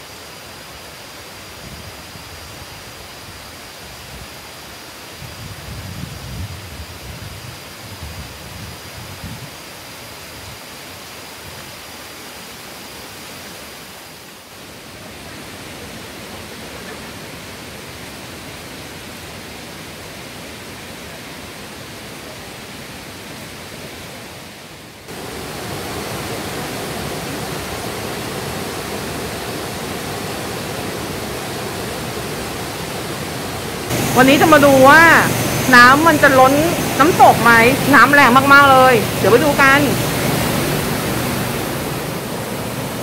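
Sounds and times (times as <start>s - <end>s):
waterfall rushing: 10.8s - 43.0s.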